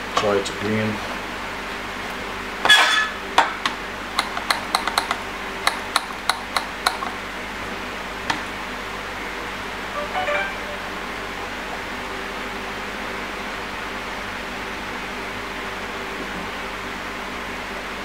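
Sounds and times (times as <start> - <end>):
faint steady hum: 3.5 - 15.6.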